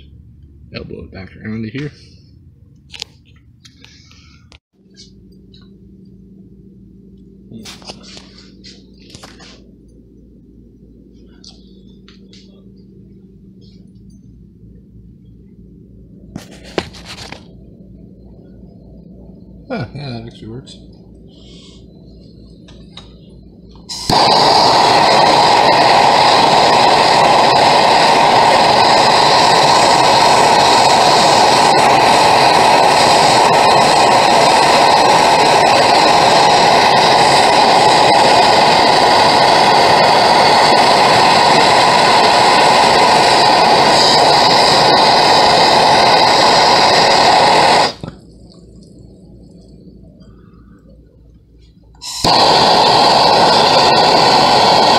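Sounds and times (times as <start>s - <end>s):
gas torch hissing: 19.0s - 50.9s, 51.6s - 54.9s.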